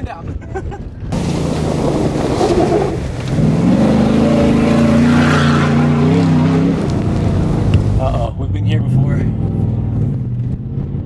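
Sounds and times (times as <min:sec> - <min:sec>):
tyres crunching on gravel: 0:01.1 - 0:08.0
truck engine revving: 0:01.1 - 0:11.0.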